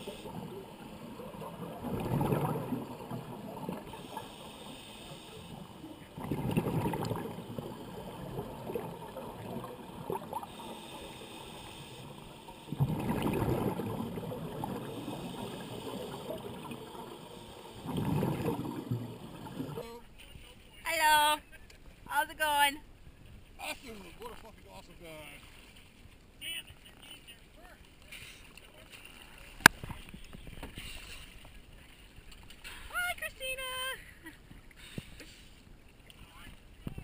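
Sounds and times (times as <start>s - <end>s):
underwater exhaled bubbles: 0.0s - 20.0s.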